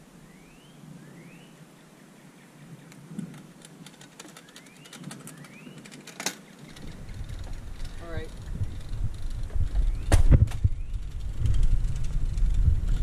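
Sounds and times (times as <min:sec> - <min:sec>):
bird whistling rising notes: 0:00.2 - 0:01.6
bicycle drivetrain clicks: 0:02.9 - 0:13.0.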